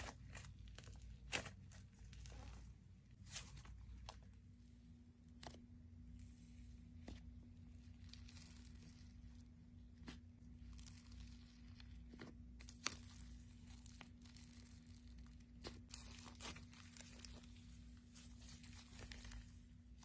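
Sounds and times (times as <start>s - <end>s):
slime crackling: 7.8s - 20.0s.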